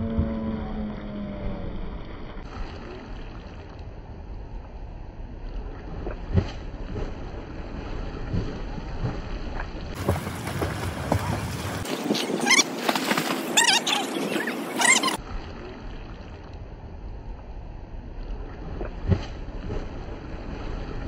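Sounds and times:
wind rumble on microphone: 0.0s - 12.6s
water splashing from swimming: 2.4s - 4.1s, 5.4s - 16.6s.

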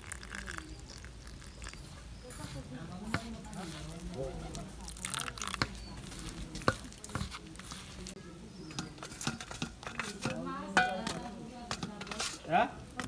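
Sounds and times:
batter squelching in a steel bowl: 0.0s - 13.0s
clicks and taps on metal bowl: 8.7s - 12.3s.

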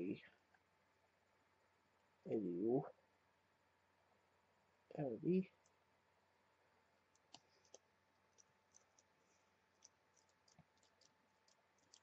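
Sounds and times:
faint steady hum: 0.0s - 12.0s
faint irregular clicks: 5.6s - 5.8s, 7.0s - 12.0s.

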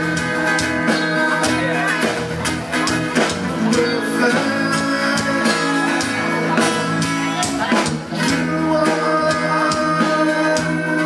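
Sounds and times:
guitar accompaniment: 0.0s - 11.0s
man singing into microphone: 3.2s - 11.0s.

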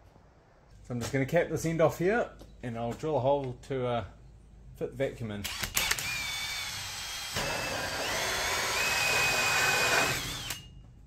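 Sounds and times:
cordless drill motor whine: 5.8s - 10.7s
hole saw cutting duct tube: 7.0s - 10.7s.

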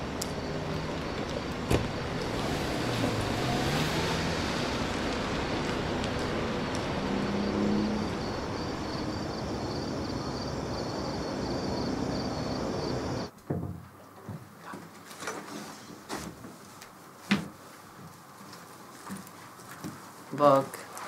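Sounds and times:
car pulling away: 0.0s - 13.3s
city traffic noise: 0.0s - 13.3s.

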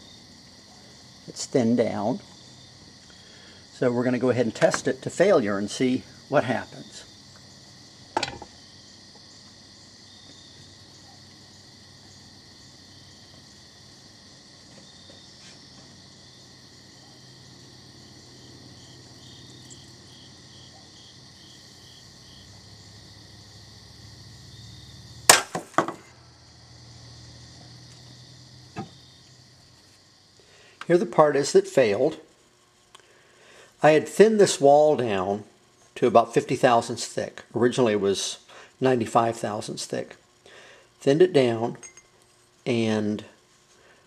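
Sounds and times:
sharp crack: 25.2s - 26.2s
air tube bursting bang: 25.3s - 26.1s.

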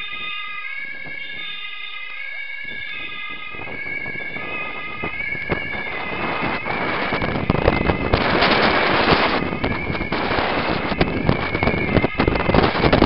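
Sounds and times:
emergency vehicle siren: 0.0s - 13.0s
wind buffeting microphone: 0.0s - 13.0s
road noise: 3.4s - 13.0s.

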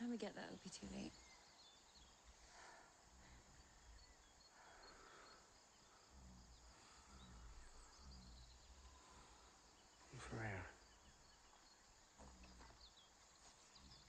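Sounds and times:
small bird chirps: 0.0s - 2.5s.

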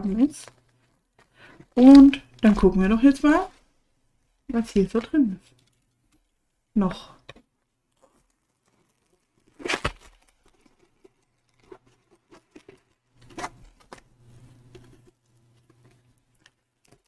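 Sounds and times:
plastic bags crinkling: 7.9s - 17.0s.

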